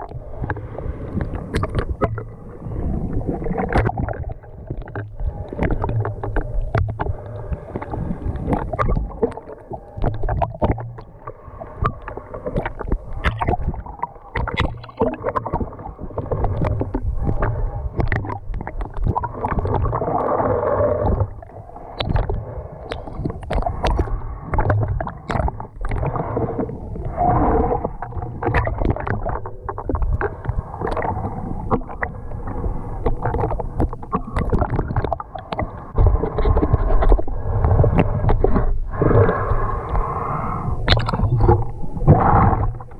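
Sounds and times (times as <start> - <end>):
small clicks and crackles: 0.0 - 2.3, 3.3 - 20.4, 21.0 - 27.1, 27.7 - 38.8, 40.8 - 41.9
muffled water sloshing and bubbling: 0.0 - 42.9
water gurgling: 0.0 - 42.9.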